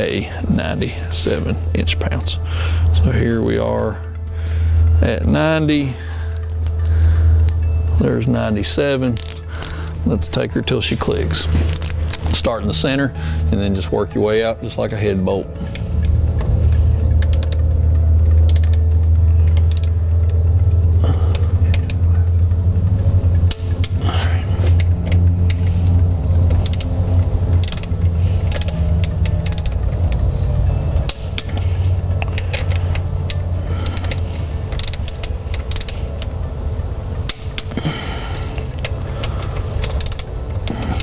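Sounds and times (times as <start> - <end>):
loud low hum: 0.0 - 41.0
torque wrench clicking: 17.1 - 17.6, 18.2 - 20.4, 26.5 - 30.2, 31.0 - 31.6, 32.2 - 36.3, 37.3 - 40.8.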